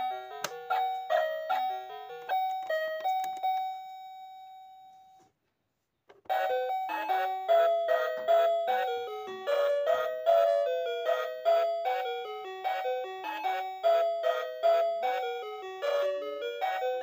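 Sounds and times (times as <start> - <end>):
chime-like melody: 6.4 - 17.0.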